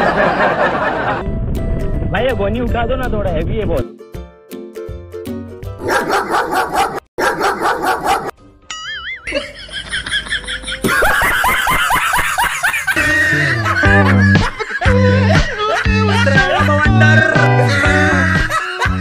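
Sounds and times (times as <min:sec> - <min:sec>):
bark-like sound effect: 0:05.8 - 0:08.3.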